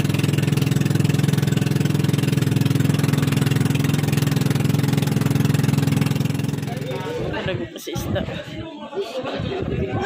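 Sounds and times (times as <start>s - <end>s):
boat engine droning: 0.0s - 7.3s.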